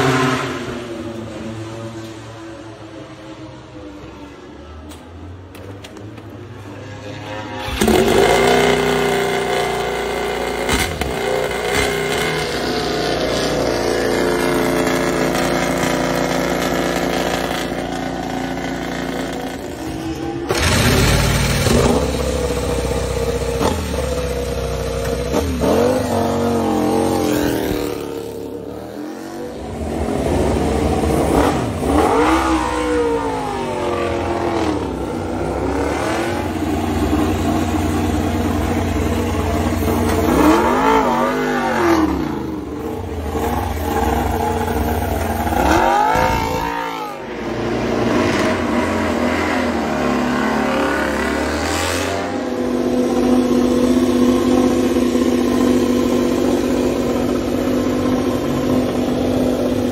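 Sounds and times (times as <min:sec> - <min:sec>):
motorcycle engine revving: 0:00.0 - 0:03.0, 0:05.8 - 0:59.9
motorcycle engines idling roughly: 0:07.6 - 0:28.6, 0:36.6 - 0:40.3, 0:42.2 - 0:45.7, 0:52.6 - 0:59.9.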